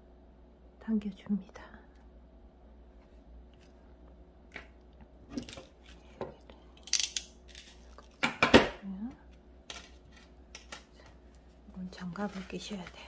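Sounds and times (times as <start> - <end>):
crimping pliers clicking: 6.8 - 7.7.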